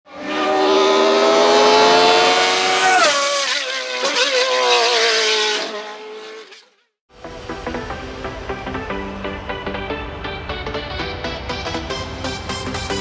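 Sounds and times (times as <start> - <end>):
race car engine revving: 0.1 - 6.6.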